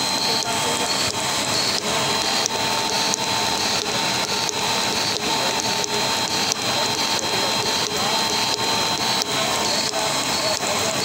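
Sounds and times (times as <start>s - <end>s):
electric pump motor whirring: 0.0s - 11.0s.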